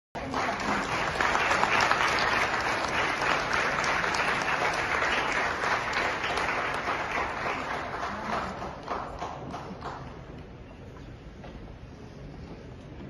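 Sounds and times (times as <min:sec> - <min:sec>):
audience applauding: 0:00.2 - 0:10.4.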